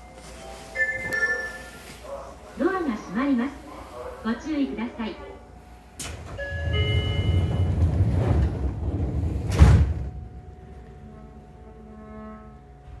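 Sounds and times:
train doors sliding shut: 5.8s - 11.0s.

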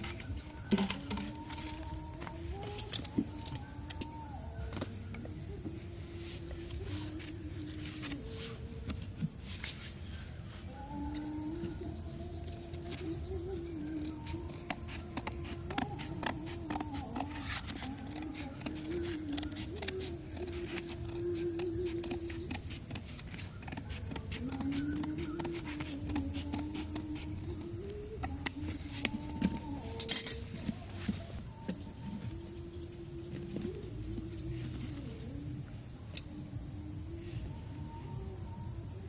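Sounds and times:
faint wavering tone: 0.0s - 15.8s, 24.4s - 39.0s
scissors snipping: 13.8s - 30.4s.

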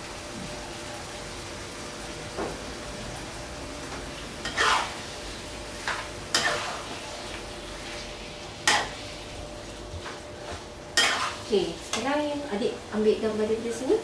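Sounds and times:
food sizzling in a wok: 0.0s - 14.0s
spatula scraping a wok: 4.4s - 9.4s, 10.0s - 12.1s.

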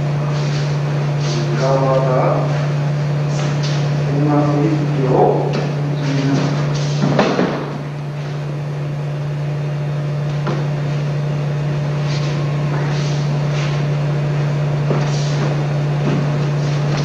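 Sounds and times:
steady low hum: 0.0s - 17.0s
people moving on mat: 2.5s - 4.0s, 6.0s - 8.4s, 14.8s - 17.0s.

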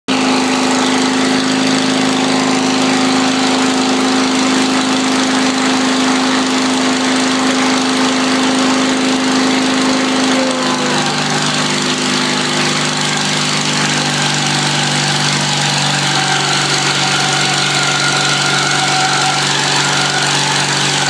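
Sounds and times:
garden tractor engine humming: 0.1s - 21.0s.

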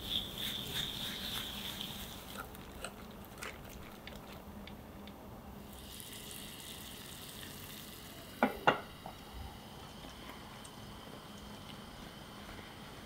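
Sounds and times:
water heating in saucepan hiss: 0.0s - 2.6s, 5.6s - 13.0s.

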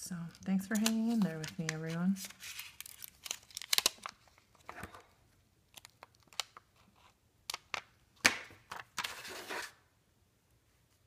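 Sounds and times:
plastic crinkling: 0.3s - 5.0s, 5.7s - 7.8s.

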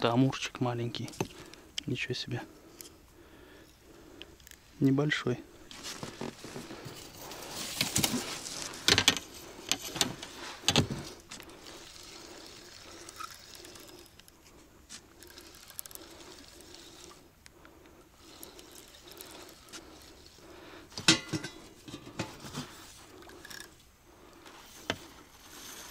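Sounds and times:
small clicks: 15.0s - 19.8s.

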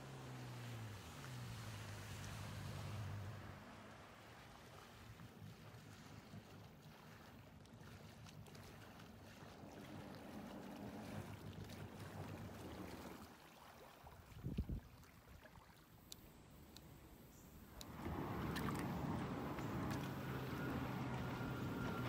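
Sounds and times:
watercraft engine running: 0.0s - 15.4s, 16.0s - 22.0s.

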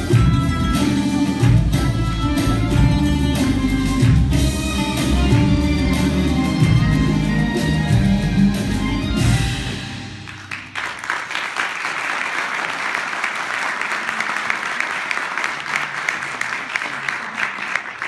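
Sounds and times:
music: 0.0s - 11.0s
audience applause: 10.2s - 18.0s.

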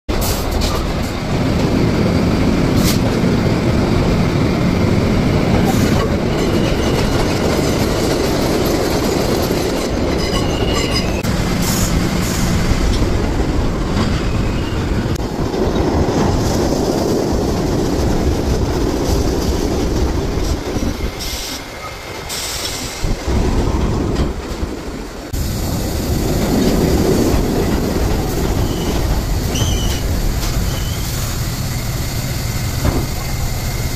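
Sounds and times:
subway train rumbling: 0.0s - 33.9s
wheel squeals: 9.5s - 11.2s, 28.4s - 32.0s.

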